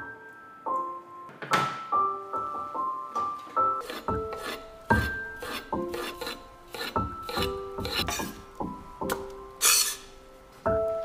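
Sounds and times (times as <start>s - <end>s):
background music: 0.0s - 11.0s
knife scraping stroke: 3.8s - 8.4s, 9.6s - 10.1s
knife slicing on wooden board: 3.8s - 8.4s.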